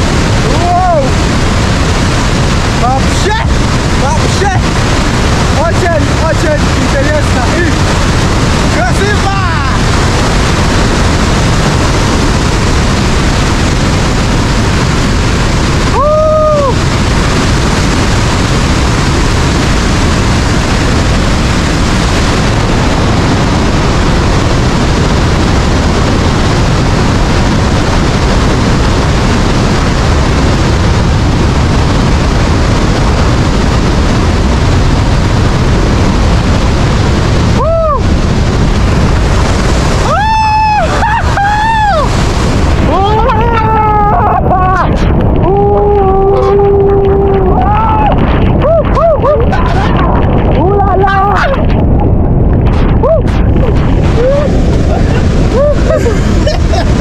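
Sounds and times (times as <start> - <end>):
waterfall roaring: 0.0 - 57.0.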